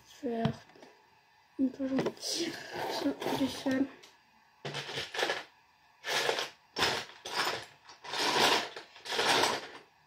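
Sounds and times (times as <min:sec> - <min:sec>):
plastic toy bricks rattling: 0:04.7 - 0:09.8.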